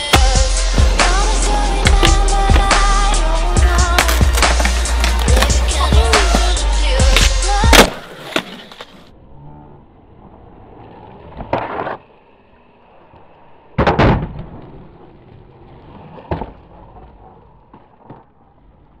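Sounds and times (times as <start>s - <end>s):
skateboard scraping concrete: 0.0s - 9.1s, 10.0s - 19.0s
skateboard wheels rolling: 0.0s - 19.0s
skateboard cracking on concrete: 3.8s - 9.1s, 10.6s - 12.4s, 13.0s - 19.0s.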